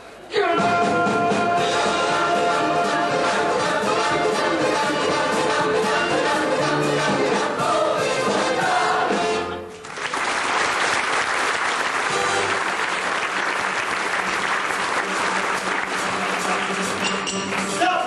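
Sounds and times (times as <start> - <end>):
orchestra and singers: 0.2 - 9.8
audience applause: 9.8 - 17.8.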